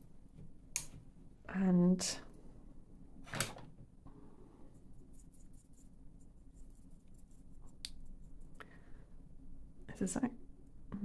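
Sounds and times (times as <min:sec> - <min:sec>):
paintbrush scratching paint pan: 0:04.8 - 0:08.5.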